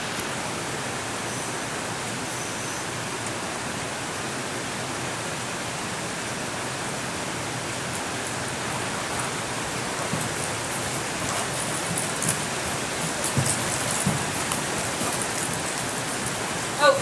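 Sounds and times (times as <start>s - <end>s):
background hiss: 0.0s - 17.0s
hooves thudding on sand: 8.6s - 17.0s.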